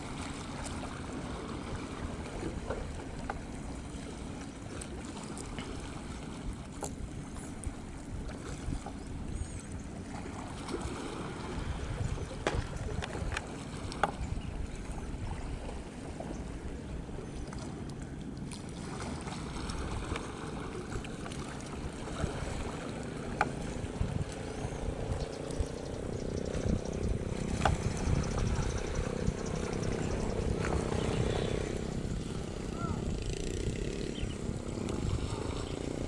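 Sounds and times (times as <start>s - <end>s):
rush of boat wake: 0.0s - 36.0s.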